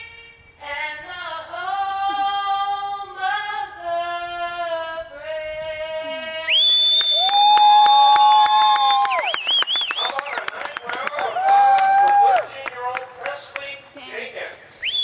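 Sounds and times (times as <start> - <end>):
girl singing into a microphone: 0.0 - 6.5.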